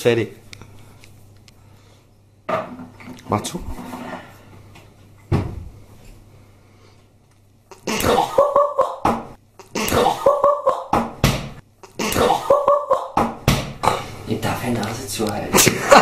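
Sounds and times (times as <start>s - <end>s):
cupboard door thump: 5.3s - 5.7s
man coughing: 7.8s - 8.4s, 9.7s - 10.4s, 11.9s - 12.6s.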